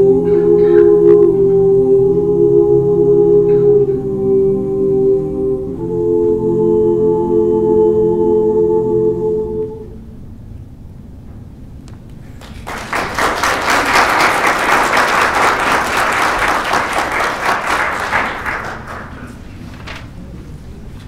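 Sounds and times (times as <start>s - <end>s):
choir holding chord: 0.0s - 10.2s, 12.7s - 19.2s
audience applause: 12.2s - 19.5s.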